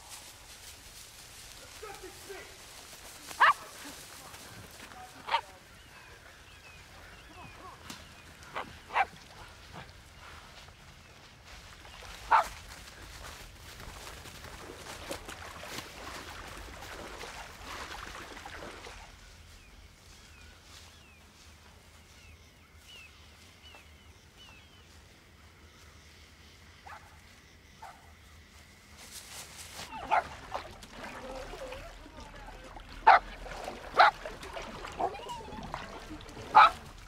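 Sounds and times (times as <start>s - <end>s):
rustling through brush: 0.0s - 22.2s, 28.6s - 37.0s
dog yelping: 29.9s - 30.4s, 33.0s - 33.3s, 33.9s - 34.2s, 34.8s - 36.9s.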